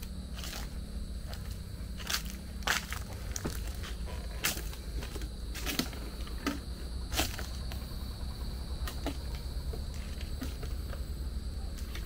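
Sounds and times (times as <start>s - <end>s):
steady low rumble: 0.0s - 12.0s
footsteps walking: 0.3s - 7.9s.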